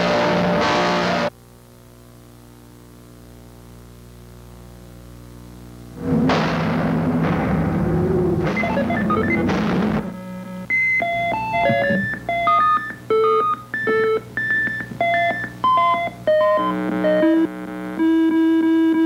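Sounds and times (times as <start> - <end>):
buzzy chord-like tone: 5.7 - 19.0
low synth drone: 5.9 - 12.5
synth notes hopping in pitch: 8.5 - 17.5.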